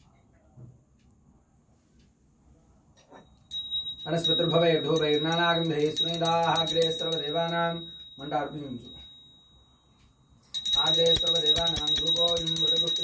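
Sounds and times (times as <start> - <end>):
hand bell ringing: 3.5 - 13.0
man chanting: 4.1 - 8.8.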